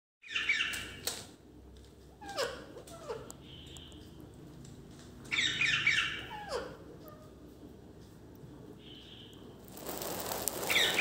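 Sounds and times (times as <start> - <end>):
parrot calling: 5.3 - 7.3, 10.0 - 11.0.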